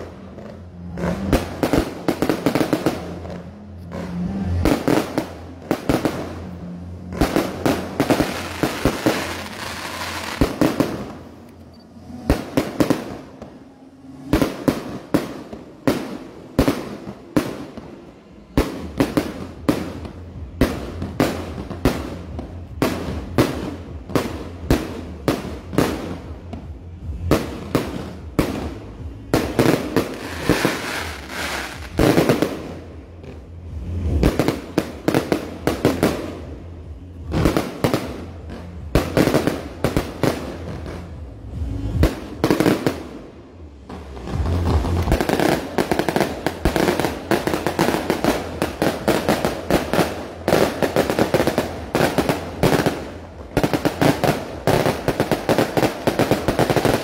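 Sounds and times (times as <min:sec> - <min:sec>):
fireworks bursting with loud bangs: 0:00.0 - 0:57.0.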